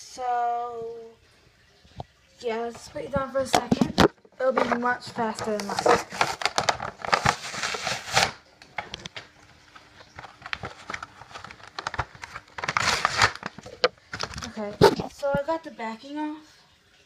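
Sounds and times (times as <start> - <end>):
plastic packaging crackling: 3.5 - 15.3.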